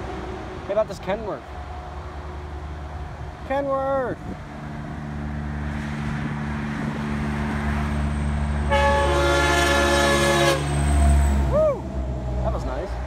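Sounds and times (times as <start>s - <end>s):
truck diesel engine drone: 0.0s - 13.0s
truck air horn chord: 8.7s - 10.8s.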